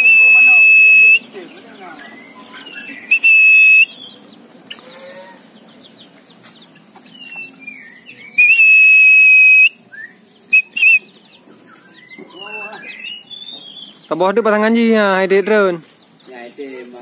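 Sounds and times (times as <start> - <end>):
loud high whistle blasts: 0.0 - 1.3, 3.1 - 4.0, 8.4 - 9.8, 10.6 - 11.1.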